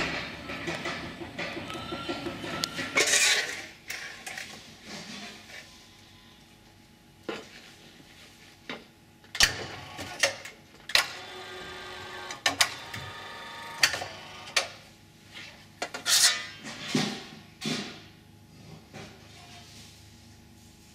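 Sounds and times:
electric gear motors running: 10.9 - 14.6.

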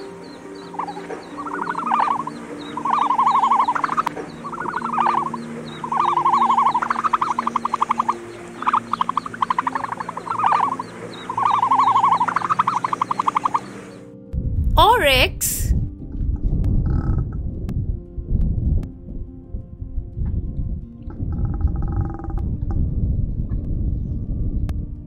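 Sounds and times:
animal croaking calls: 0.6 - 13.8, 16.9 - 17.3, 21.3 - 22.4.

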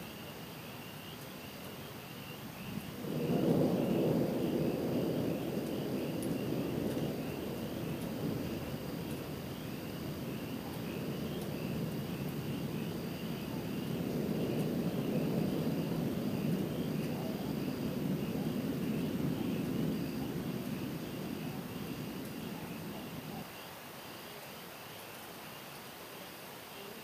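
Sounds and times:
distant thunder rumbling: 2.2 - 23.5.

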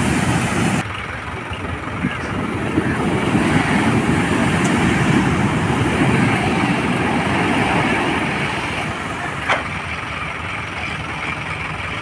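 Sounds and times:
heavy surf breaking on beach: 0.0 - 0.8, 2.2 - 9.9.

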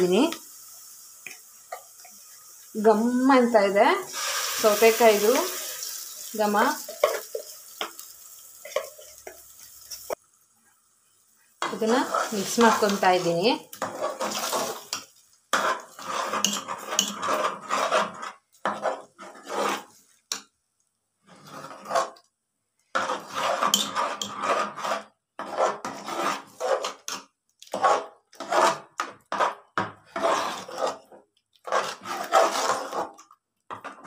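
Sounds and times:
metal spoon scraping a pot: 11.6 - 20.4, 21.2 - 22.3, 22.9 - 34.0.

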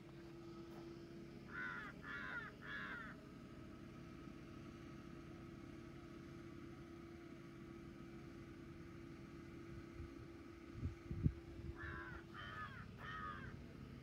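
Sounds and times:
crow cawing: 1.5 - 3.2, 11.8 - 13.6.

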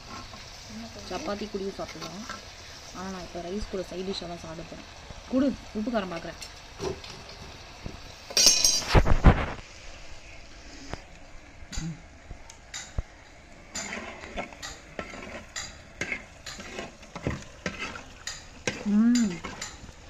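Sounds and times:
chicken sizzling: 0.0 - 20.0
spoon scraping clay pot: 13.7 - 19.9.

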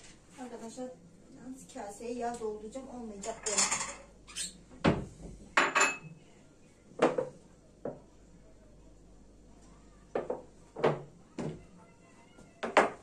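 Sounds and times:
kitchenware knocks and clinks: 3.2 - 4.1, 4.8 - 6.1, 10.2 - 11.1, 12.6 - 13.0.

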